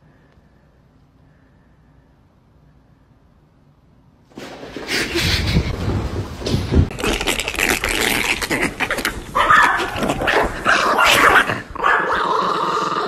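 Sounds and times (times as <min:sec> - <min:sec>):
rustling and knocking: 0:04.3 - 0:07.9.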